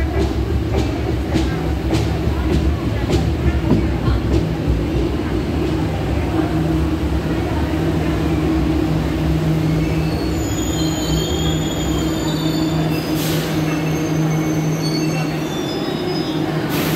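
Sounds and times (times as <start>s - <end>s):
train low hum: 0.0s - 16.9s
high-pitched wheel squeals: 9.8s - 13.1s, 13.7s - 16.5s.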